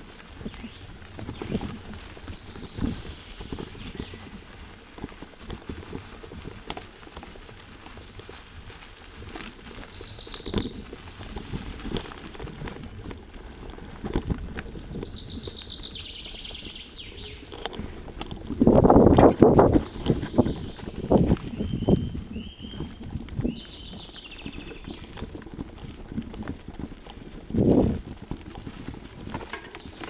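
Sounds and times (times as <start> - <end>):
bike tyres rolling on dirt: 0.0 - 30.0
bird singing: 0.4 - 4.3, 9.6 - 10.8, 14.4 - 17.6, 19.8 - 25.2.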